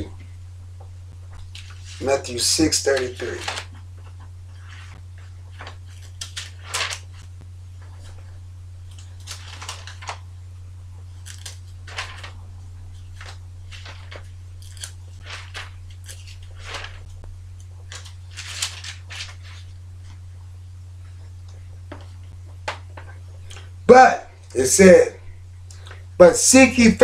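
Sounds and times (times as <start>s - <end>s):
steady low hum: 0.0s - 27.0s
paper pages rustling: 1.3s - 10.3s, 11.0s - 20.3s.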